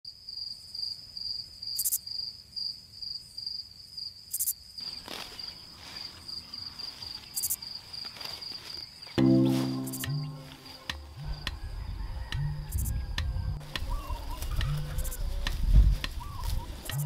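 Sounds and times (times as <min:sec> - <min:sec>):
insects trilling: 0:00.1 - 0:17.0
soft rustling: 0:04.8 - 0:09.8.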